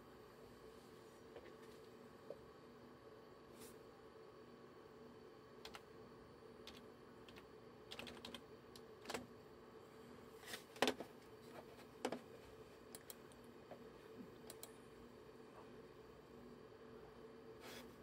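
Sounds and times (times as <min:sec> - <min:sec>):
faint steady hum: 0:00.0 - 0:18.0
keyboard keys clicking: 0:06.7 - 0:08.4.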